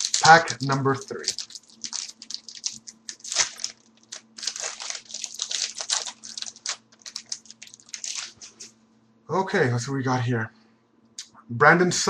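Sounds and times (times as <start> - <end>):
foil wrapper tearing and crinkling: 0.0 - 8.6.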